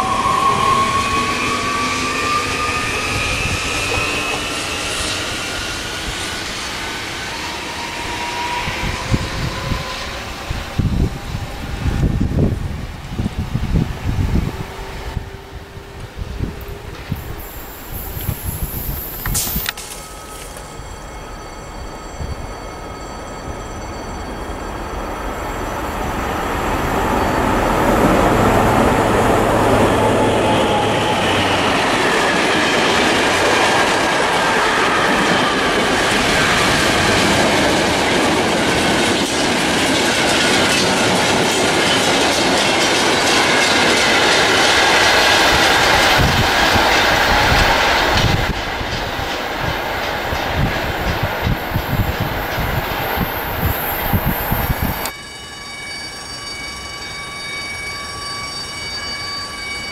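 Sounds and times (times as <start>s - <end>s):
diesel locomotive passing: 0.0s - 59.9s
train wheels clattering over rails: 31.1s - 54.3s.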